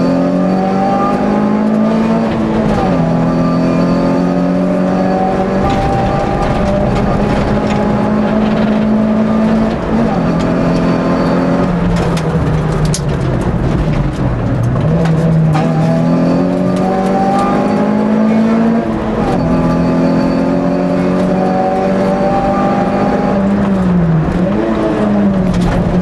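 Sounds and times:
racing car engine revving: 0.0 - 26.0.

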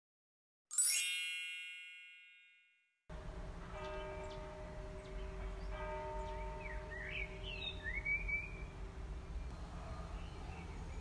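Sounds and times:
shimmering chime: 0.7 - 2.7.

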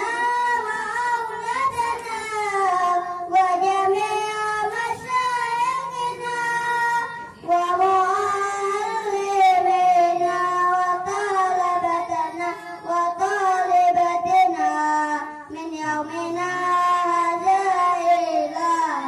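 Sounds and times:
child singing into microphone: 0.0 - 19.0.

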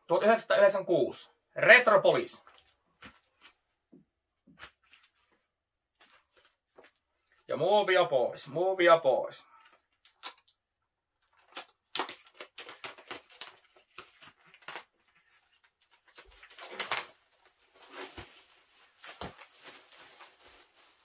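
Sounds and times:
plastic shrink-wrap crinkling: 11.2 - 21.0.

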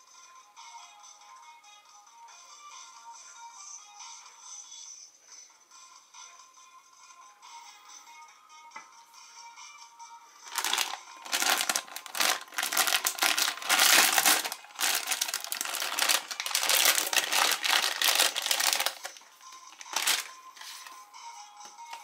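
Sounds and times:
foil packet crinkling: 10.5 - 20.8.

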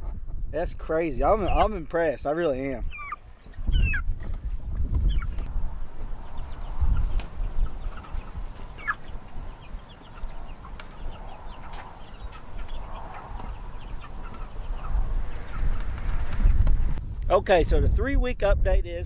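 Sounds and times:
wind rumbling on microphone: 0.0 - 19.0
chickens cheeping: 1.2 - 1.8, 2.5 - 16.9.

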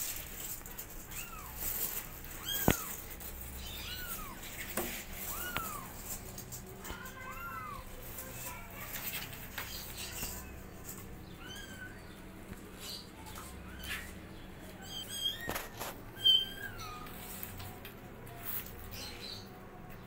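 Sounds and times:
kittens mewing: 0.4 - 8.9, 11.2 - 12.2, 14.8 - 17.4.

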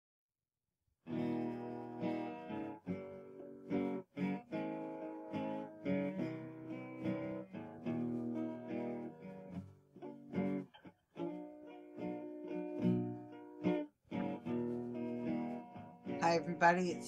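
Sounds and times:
guitar chords strummed: 1.0 - 17.0.

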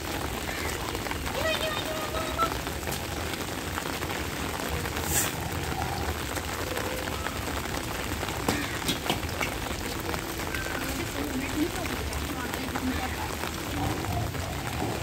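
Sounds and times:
rain on wet tiles: 0.0 - 15.0.

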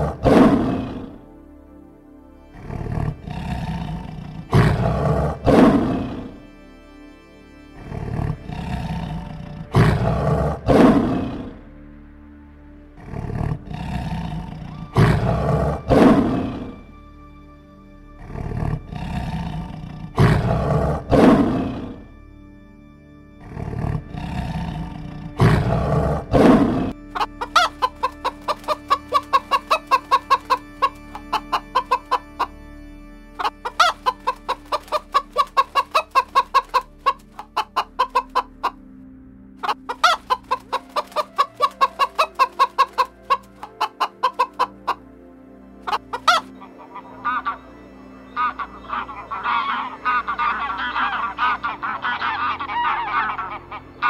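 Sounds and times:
lion roaring: 0.0 - 1.2, 2.6 - 6.4, 7.8 - 11.6, 13.0 - 16.8, 18.2 - 22.0, 23.4 - 27.0
chicken clucking: 27.2 - 32.5, 33.4 - 38.8, 39.6 - 45.0, 45.9 - 47.7, 48.3 - 54.0.

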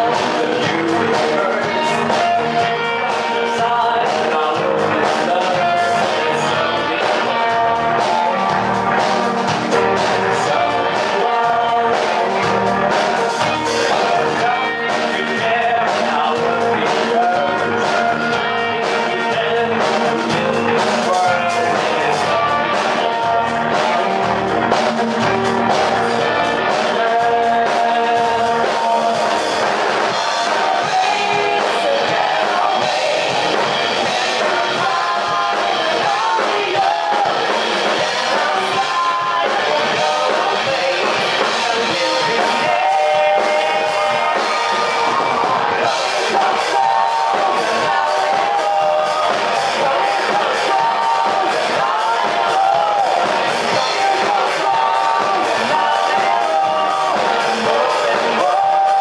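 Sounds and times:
bass guitar: 0.0 - 59.0
drum kit beat: 0.0 - 59.0
electric guitar: 0.0 - 59.0
male lead vocal singing: 0.0 - 59.0.

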